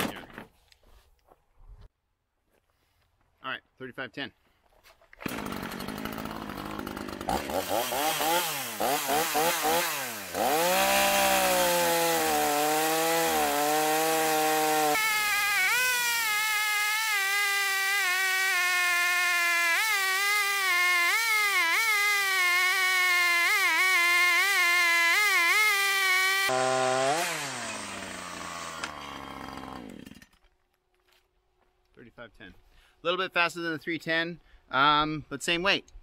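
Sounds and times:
chainsaw revving and cutting log: 5.2 - 30.4.

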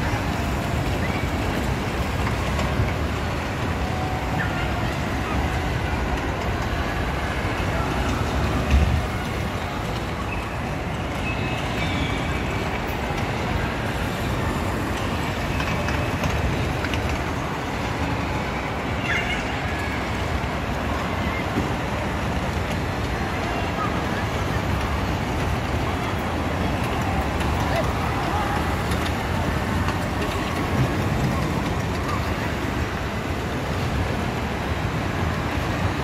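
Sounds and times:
bumper cars rolling: 0.0 - 36.0
bumper car thump: 8.6 - 9.2.

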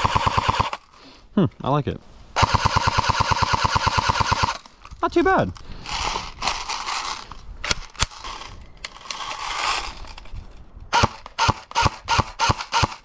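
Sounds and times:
handling rustle: 4.6 - 11.4.

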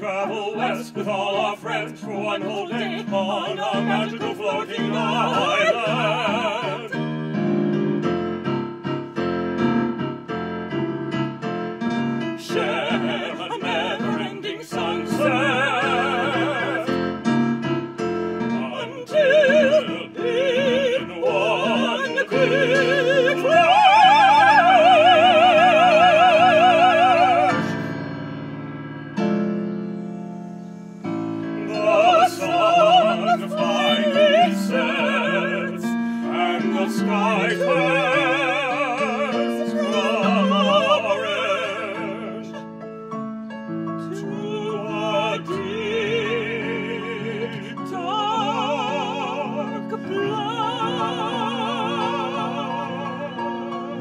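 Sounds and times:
woman and man singing opera duet: 0.0 - 7.4, 12.3 - 17.3, 18.3 - 27.9, 31.5 - 42.8, 44.0 - 54.0
electric keyboard accompaniment: 2.0 - 37.2.

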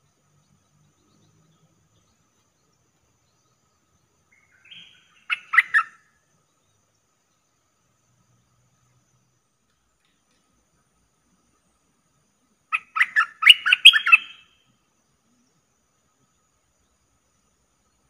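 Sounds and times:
bulbul song: 0.0 - 6.6, 12.7 - 14.8.

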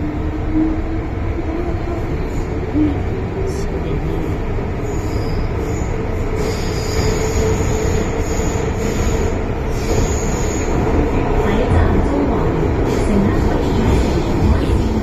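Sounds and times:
train rumbling on rails: 0.0 - 15.0.

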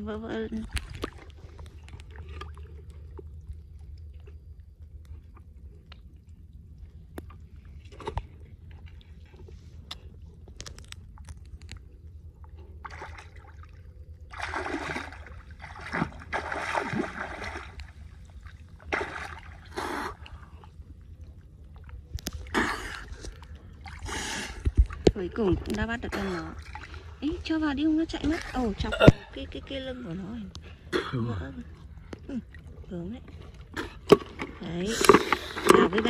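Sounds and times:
seawater splashing and sloshing: 12.8 - 20.8, 21.7 - 27.6.

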